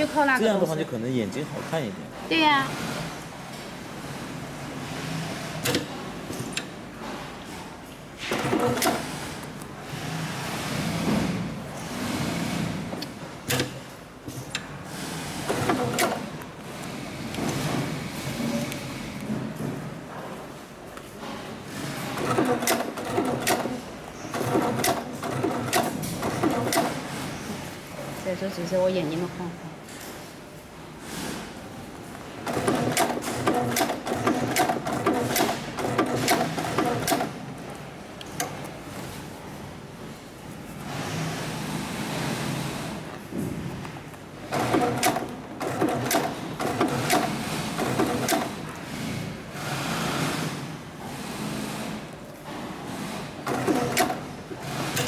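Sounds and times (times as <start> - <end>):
sewing machine humming: 14.9 - 18.6, 21.7 - 27.3, 32.4 - 37.5, 44.4 - 52.2, 52.8 - 55.0.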